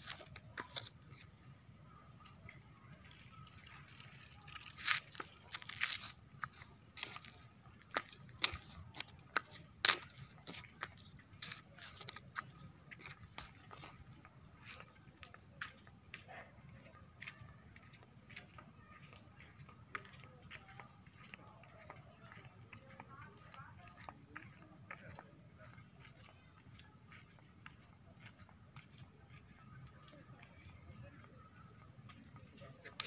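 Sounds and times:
footsteps on asphalt: 0.0s - 1.4s, 2.2s - 33.0s
night insects chirring: 0.0s - 33.0s.

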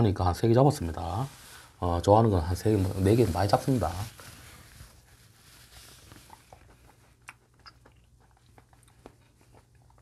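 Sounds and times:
wet mouth chewing clicks: 6.1s - 10.0s.

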